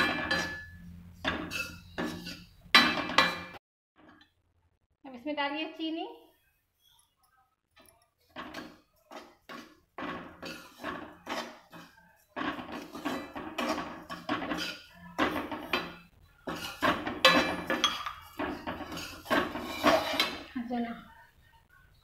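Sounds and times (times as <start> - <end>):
metal spoon scraping a metal pan: 0.0 - 3.6, 8.3 - 20.6.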